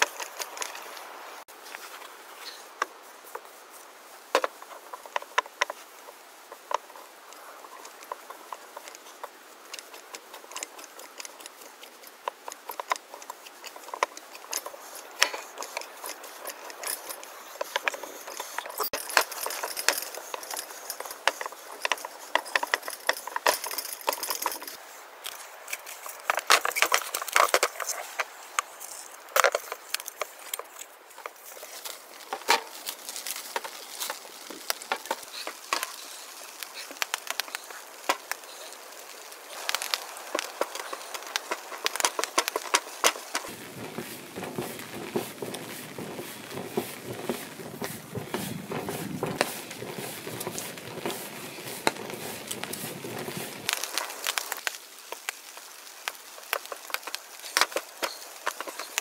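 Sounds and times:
hands kneading sticky dough: 31.7 - 54.7.

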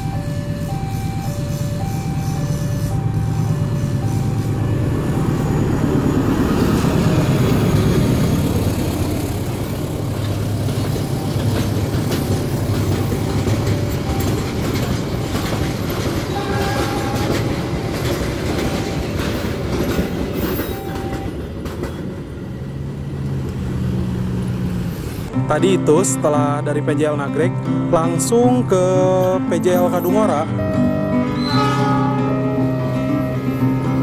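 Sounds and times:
wagons rumbling: 0.0 - 25.3
locomotive engine running: 0.0 - 25.4, 28.8 - 34.0
wheels clacking over rail joints: 5.2 - 25.1
wheel squeals: 29.8 - 34.0.

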